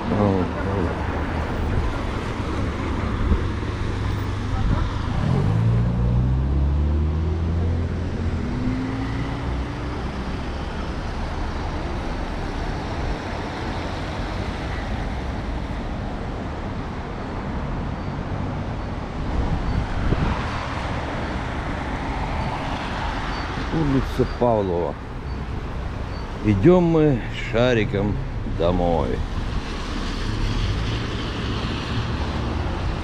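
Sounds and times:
road noise: 0:00.0 - 0:33.0
vehicle passing: 0:01.2 - 0:13.0
vehicle engine accelerating: 0:04.6 - 0:11.7.

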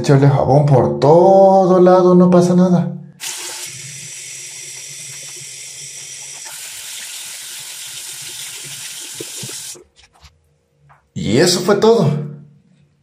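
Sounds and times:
tap water running into sink: 0:03.2 - 0:09.9.

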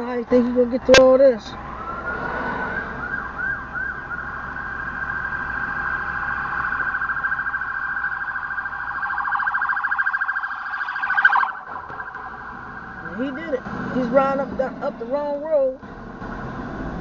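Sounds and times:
ambulance siren wailing: 0:00.6 - 0:15.8.

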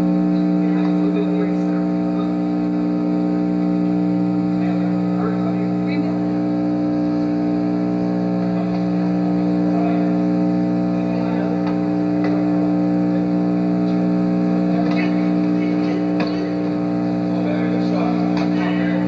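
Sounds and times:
low electrical hum: 0:00.0 - 0:19.0
indistinct voices: 0:07.9 - 0:19.0.

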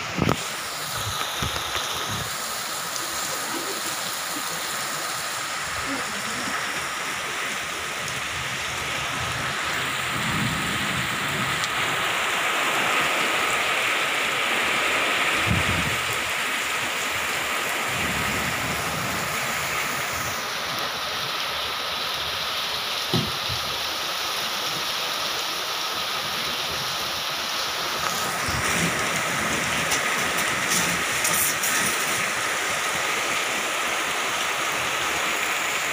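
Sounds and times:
wind rumbling: 0:00.0 - 0:20.5, 0:27.9 - 0:35.8
heavy rain pouring: 0:00.0 - 0:35.9.

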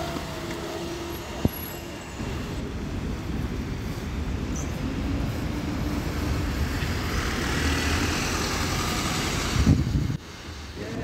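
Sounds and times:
bus engine passing: 0:00.0 - 0:11.0.

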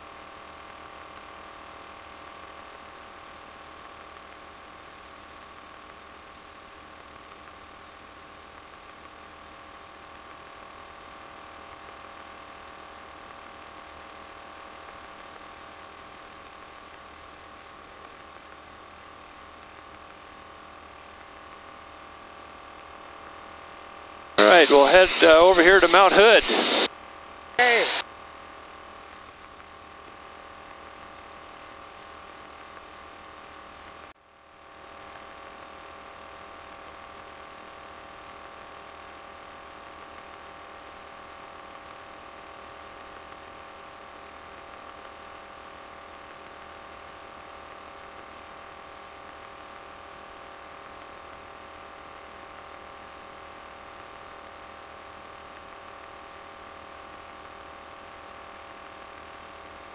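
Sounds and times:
faint steady tones: 0:24.4 - 0:26.9, 0:27.6 - 0:28.0
intercom hum and hiss: 0:24.4 - 0:26.9, 0:27.6 - 0:28.0.

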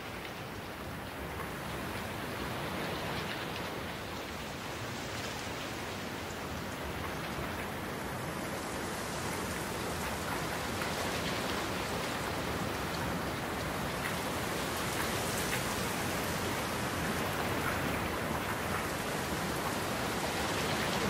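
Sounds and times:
rain on wet asphalt: 0:00.0 - 0:21.0.

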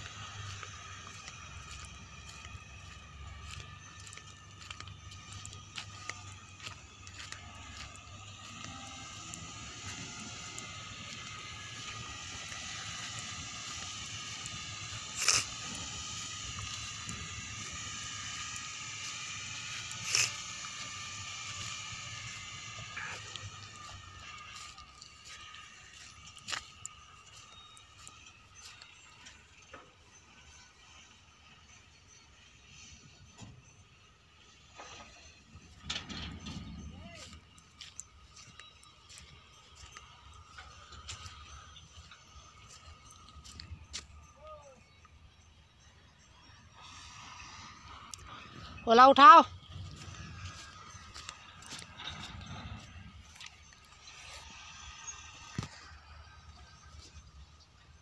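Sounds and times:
diesel engines rumbling: 0:00.0 - 0:58.0
distant heavy machinery hum: 0:00.0 - 0:58.0.

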